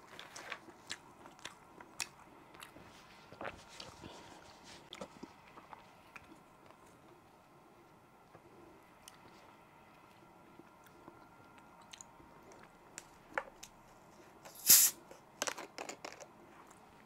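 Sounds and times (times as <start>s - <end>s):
gas hissing from bottle: 14.5s - 15.0s
cap and bottle crackles: 14.5s - 16.2s.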